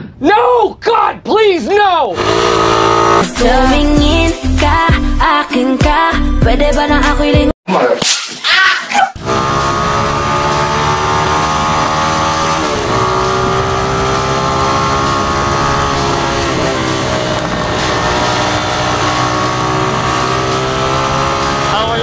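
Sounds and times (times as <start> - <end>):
motorcycle engine running: 2.2 - 3.7, 9.2 - 22.0.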